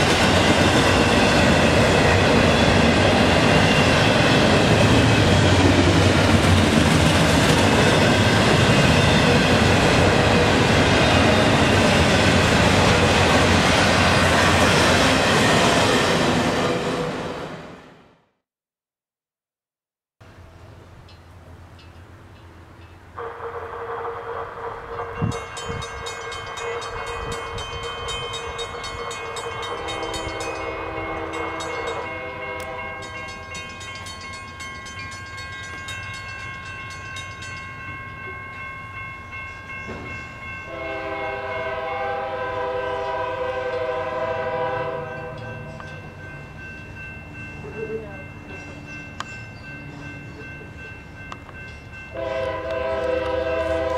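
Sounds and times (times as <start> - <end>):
locomotive air horn blasts: 23.2 - 25.4, 29.8 - 33.0, 40.7 - 45.4, 52.1 - 53.9
crossing signal bell ringing: 24.8 - 53.9.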